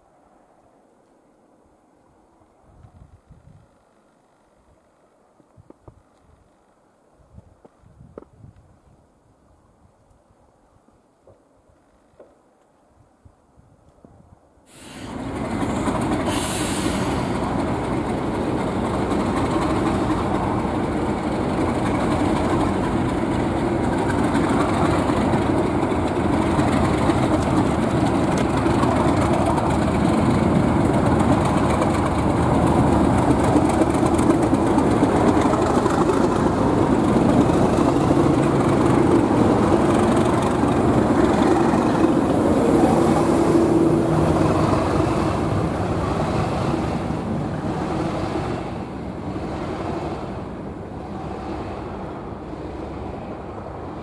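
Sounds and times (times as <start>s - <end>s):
diesel train passing: 14.7s - 54.0s.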